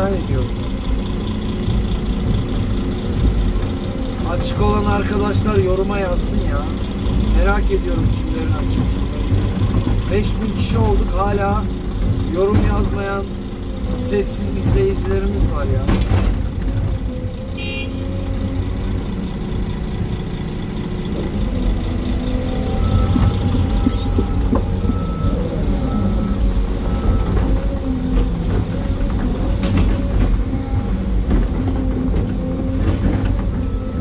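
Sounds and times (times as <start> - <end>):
excavator diesel engine and hydraulics: 0.0 - 34.0
warning beep: 22.6 - 27.4.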